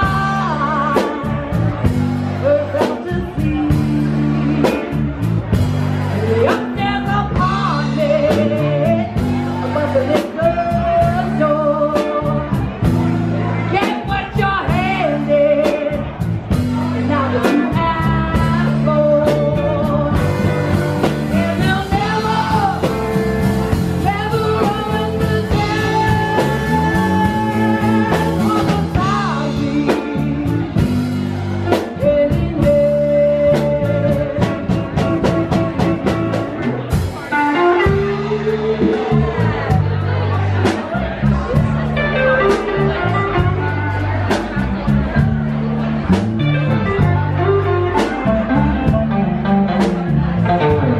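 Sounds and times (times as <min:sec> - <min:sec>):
woman singing: 0:00.0 - 0:01.8, 0:02.4 - 0:05.1, 0:06.1 - 0:12.8, 0:13.7 - 0:16.2, 0:16.8 - 0:31.1, 0:31.7 - 0:35.9, 0:37.3 - 0:39.2
drum kit beat: 0:00.0 - 0:50.9
electric bass: 0:00.0 - 0:50.9
electric guitar: 0:00.0 - 0:50.9.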